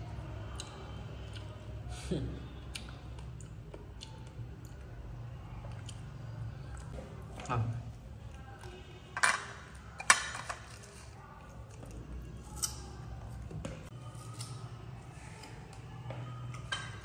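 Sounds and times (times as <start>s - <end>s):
crockery clinking: 9.2s - 11.0s, 16.6s - 17.0s.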